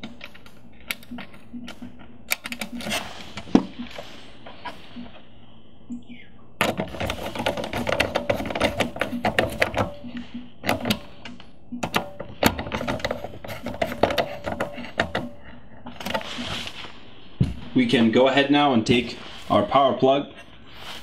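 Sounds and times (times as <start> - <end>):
screwdriver clicking and scraping: 0.0 - 4.0, 6.6 - 16.6.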